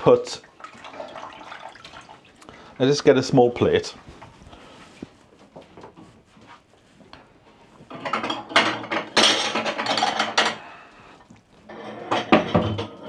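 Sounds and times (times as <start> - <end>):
crockery rattling and clattering: 7.8 - 10.7, 11.7 - 13.0.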